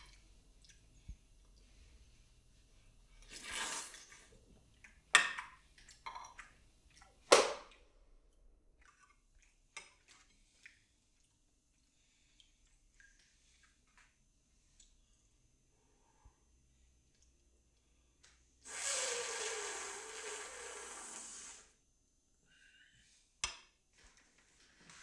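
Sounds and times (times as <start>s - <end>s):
soup slurping: 3.4s - 4.2s, 18.7s - 21.7s.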